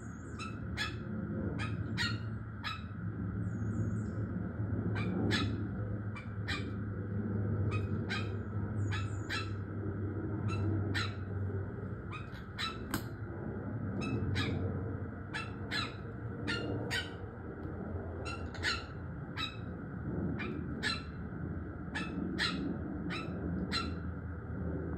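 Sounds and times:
parrots chattering calls: 0.3 - 3.0, 4.9 - 6.8, 7.6 - 9.7, 10.4 - 11.4, 12.0 - 13.1, 14.0 - 17.4, 18.2 - 19.7.

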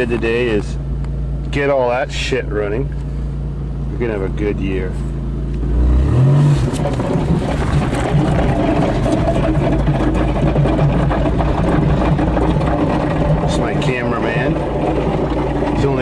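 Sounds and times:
car engine revving: 0.0 - 16.0
car body rattling: 5.6 - 16.0.

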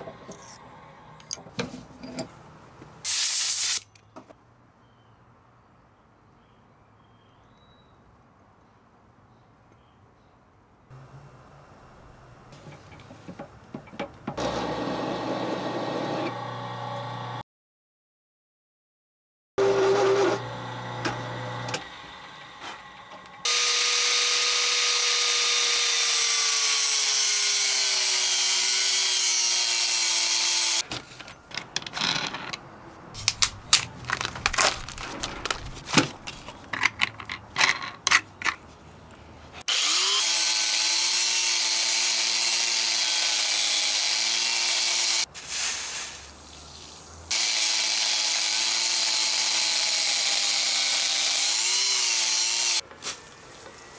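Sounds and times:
angle grinder cutting steel: 23.4 - 30.8, 39.6 - 45.3, 47.3 - 52.8
clicks and knocks of handling: 33.2 - 39.2.

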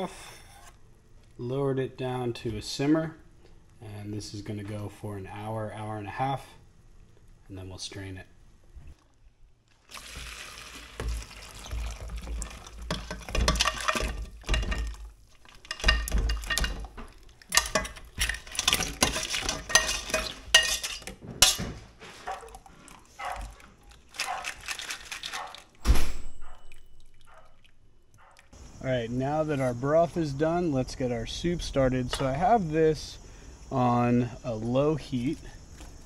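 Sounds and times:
crab shells rattling: 12.9 - 21.1, 23.2 - 25.8
metal clinking against metal: 13.0 - 16.9, 17.5 - 21.7.

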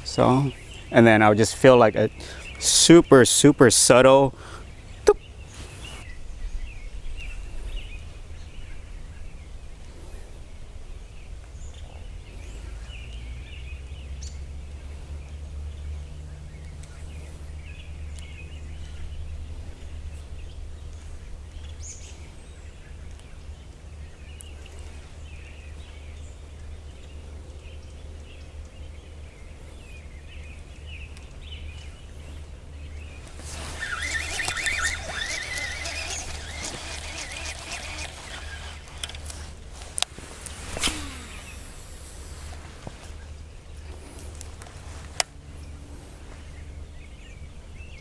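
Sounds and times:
small birds chirping: 0.0 - 48.0
steady low rumble: 4.7 - 21.8.

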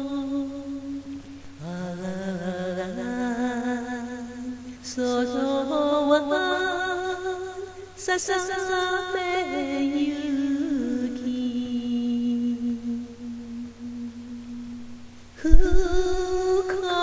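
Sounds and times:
person singing a held note: 12.1 - 17.0.

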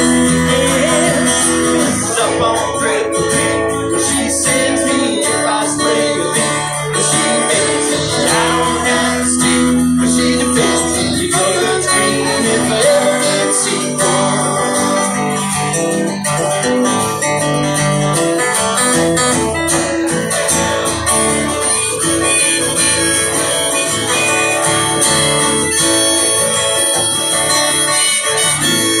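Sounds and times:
man singing: 0.0 - 16.7
acoustic guitars strummed: 0.0 - 29.0.

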